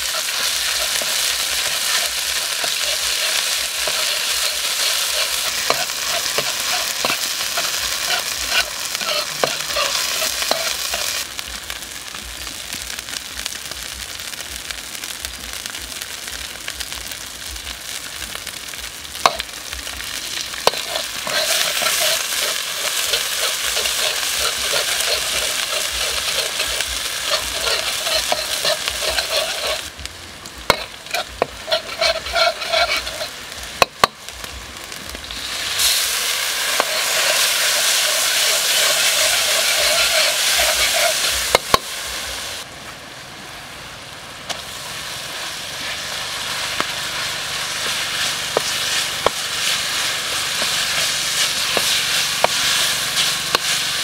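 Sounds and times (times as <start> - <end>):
metal ladle scraping wok: 0.0 - 11.2, 20.2 - 29.9, 30.7 - 33.4, 35.3 - 41.8
chili flakes sizzling in oil: 0.0 - 54.0.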